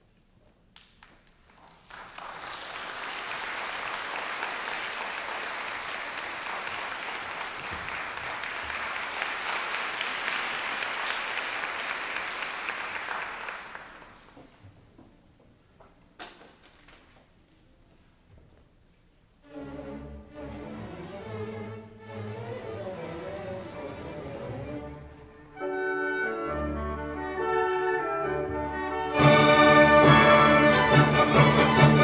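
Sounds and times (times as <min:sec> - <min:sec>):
audience applauding: 0:01.0 - 0:14.4.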